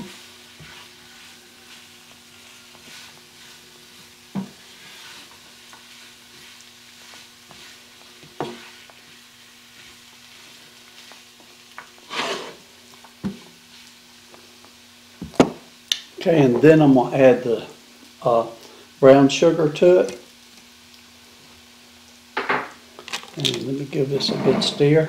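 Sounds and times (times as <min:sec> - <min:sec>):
spoon scraping a pan: 0:00.0 - 0:11.2, 0:11.8 - 0:12.6, 0:24.0 - 0:25.0
chicken and onion sizzling: 0:00.0 - 0:25.0.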